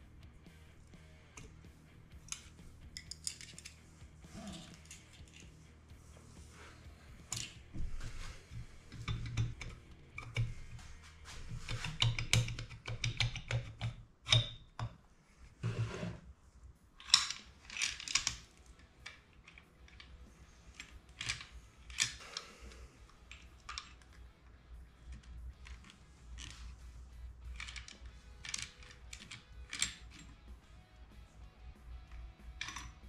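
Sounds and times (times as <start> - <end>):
small metal tools clinking: 2.3 - 3.8, 4.4 - 5.5, 27.5 - 30.4, 32.5 - 33.0.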